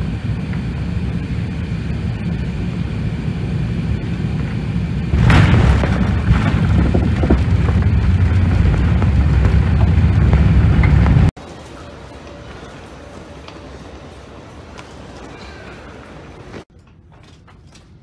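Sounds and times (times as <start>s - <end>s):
aircraft cabin rumble: 0.0s - 11.8s.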